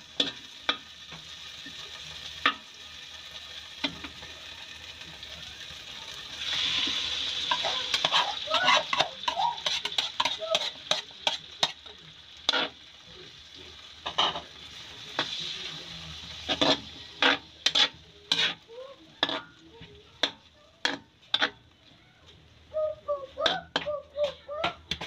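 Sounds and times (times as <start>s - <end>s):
food sizzling: 0.0s - 25.0s
metal spatula scraping a wok: 0.2s - 0.8s, 6.4s - 12.8s, 14.0s - 21.7s.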